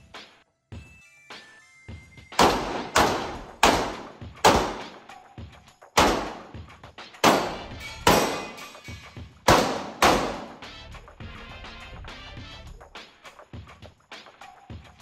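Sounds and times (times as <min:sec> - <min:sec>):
pistol shots with long echo: 0:02.4 - 0:05.1, 0:06.0 - 0:06.6, 0:07.2 - 0:08.7, 0:09.5 - 0:10.6.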